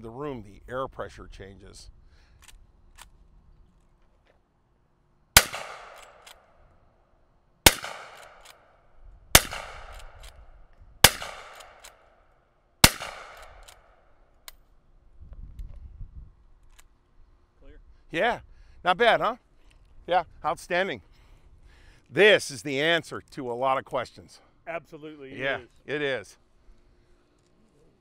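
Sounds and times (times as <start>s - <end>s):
metallic clicks of rifle lever: 2.3s - 4.4s, 5.8s - 6.8s, 8.0s - 8.7s, 9.5s - 12.2s, 13.0s - 14.7s, 16.6s - 17.0s
rifle shots with echo: 5.4s - 6.5s, 7.6s - 10.4s, 11.0s - 12.2s, 12.8s - 14.1s.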